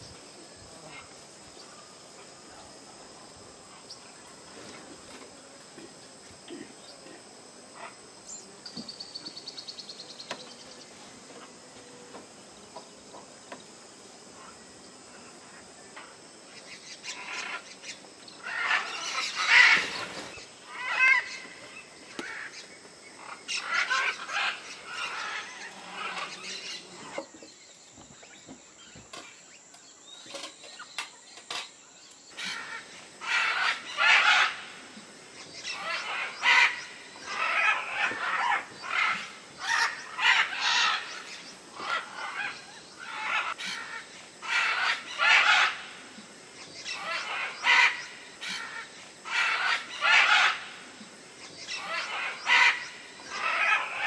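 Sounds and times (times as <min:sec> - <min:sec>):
birds squawking: 0:32.4 - 0:34.7, 0:35.5 - 0:45.9, 0:46.8 - 0:50.8, 0:51.6 - 0:54.0.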